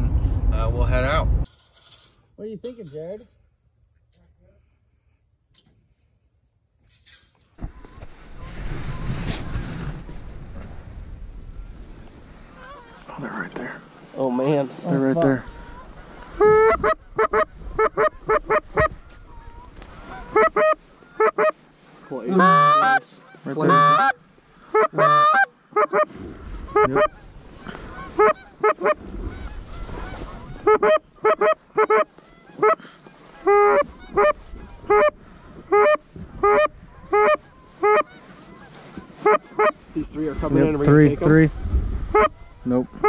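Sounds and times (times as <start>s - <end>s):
goose honks and clucks: 12.5s - 13.0s, 14.8s - 43.0s.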